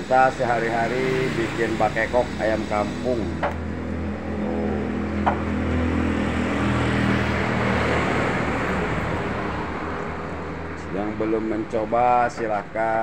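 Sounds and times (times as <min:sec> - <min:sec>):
steady low hum: 0:00.0 - 0:13.0
motor vehicle passing by: 0:00.2 - 0:13.0.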